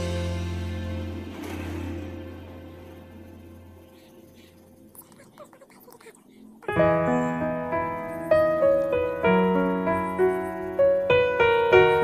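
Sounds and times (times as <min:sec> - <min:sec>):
slow piano melody: 0:00.0 - 0:05.0, 0:06.6 - 0:12.0.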